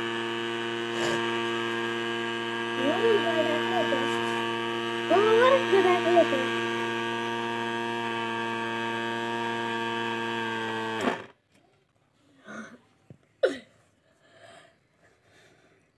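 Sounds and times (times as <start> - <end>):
grinding mill humming: 0.0 - 11.4.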